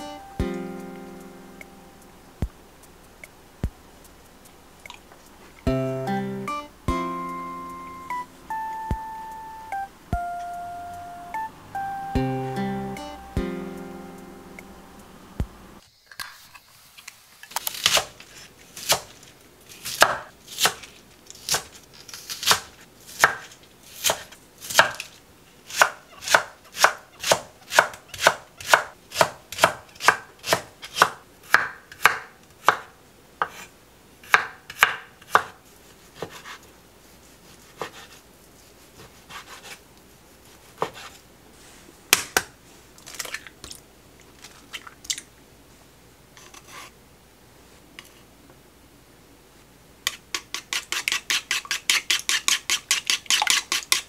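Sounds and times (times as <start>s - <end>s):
knife chopping on wooden board: 19.9s - 20.9s, 22.4s - 25.0s, 25.7s - 33.6s, 34.2s - 35.6s, 36.2s - 36.6s, 37.7s - 38.2s, 40.7s - 41.2s.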